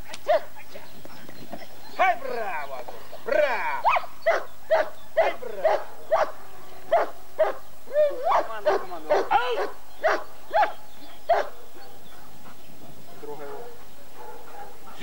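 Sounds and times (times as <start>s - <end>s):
dog barking: 0.2s - 0.5s, 3.3s - 7.6s, 8.2s - 12.4s, 13.1s - 15.0s.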